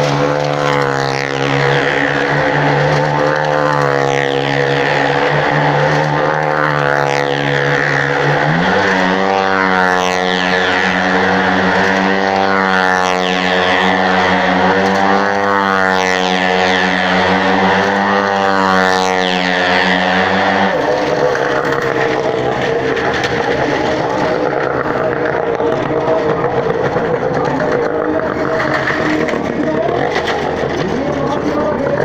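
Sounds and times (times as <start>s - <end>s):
motorcycle engine revving: 0.0s - 32.0s.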